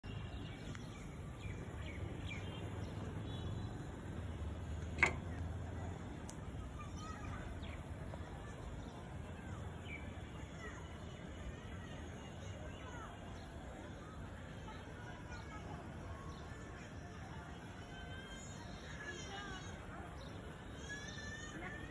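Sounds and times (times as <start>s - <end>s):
sharp click: 4.8s - 5.4s.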